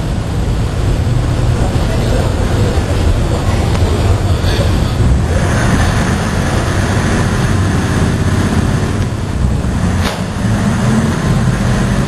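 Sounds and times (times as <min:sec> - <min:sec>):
boat engines rumbling: 0:00.0 - 0:12.0.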